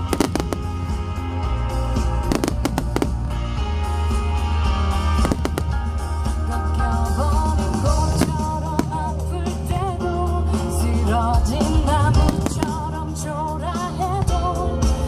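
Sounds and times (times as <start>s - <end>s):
deep bass: 0.0s - 14.5s
sharp cracks: 2.3s - 3.4s.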